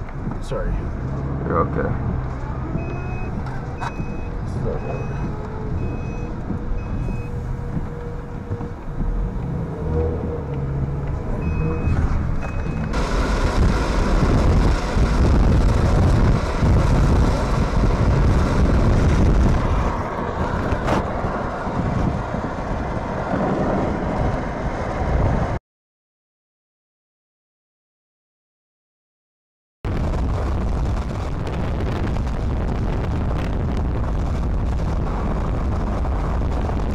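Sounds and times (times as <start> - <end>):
vehicle running rumble: 0.0 - 25.6, 29.9 - 36.9
wind and road noise: 0.0 - 25.6, 29.9 - 36.9
short electronic beeps: 2.8 - 7.4, 11.3 - 13.0.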